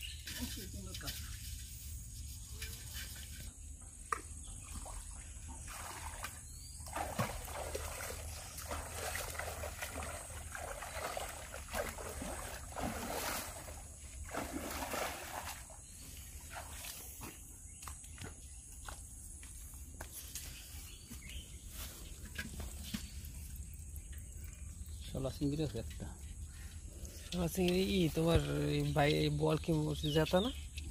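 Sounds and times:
river water splashing: 4.6s - 15.8s.

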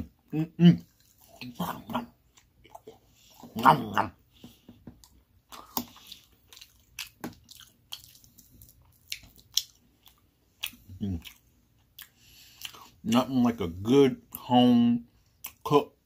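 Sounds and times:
chewing and wet mouth clicks: 5.0s - 13.0s.

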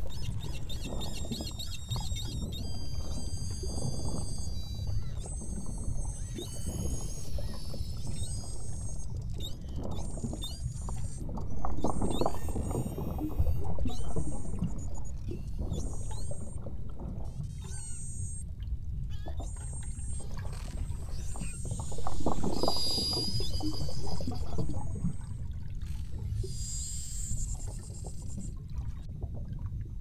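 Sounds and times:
whale whistles and chirps: 0.0s - 28.6s.

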